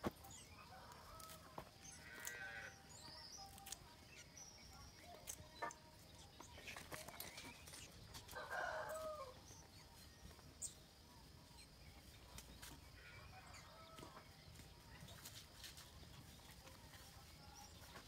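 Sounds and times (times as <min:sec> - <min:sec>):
rooster crowing: 0:08.3 - 0:09.4.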